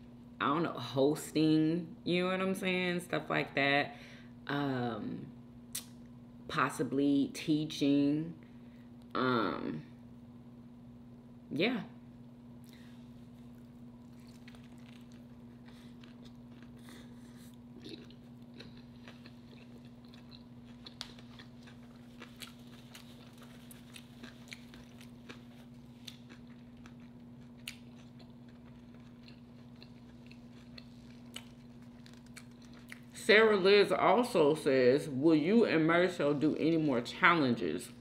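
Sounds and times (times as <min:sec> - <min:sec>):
steady low hum: 0:00.0 - 0:38.0
person chewing: 0:12.6 - 0:33.2.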